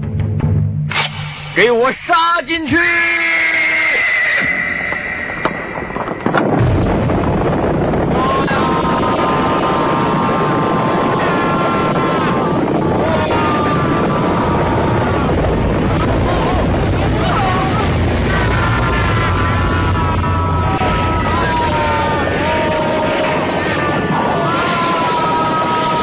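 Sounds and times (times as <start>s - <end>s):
long held tones: 4.2s - 7.1s, 19.0s - 26.0s
cavalry charge rumble: 4.4s - 26.0s.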